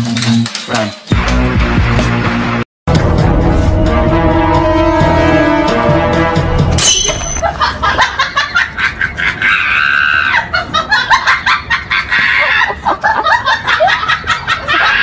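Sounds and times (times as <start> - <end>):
person screaming and laughing: 8.8 - 13.1, 14.0 - 15.0.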